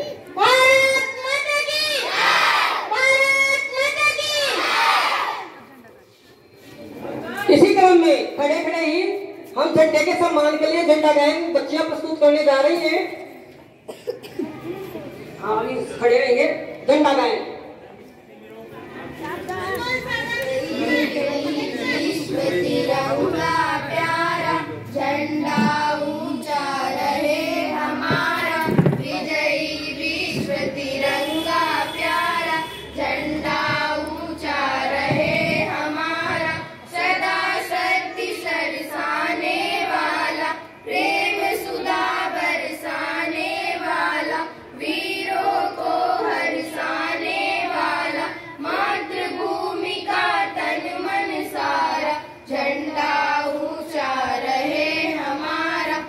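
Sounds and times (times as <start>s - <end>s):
children singing together: 20.4s - 56.0s.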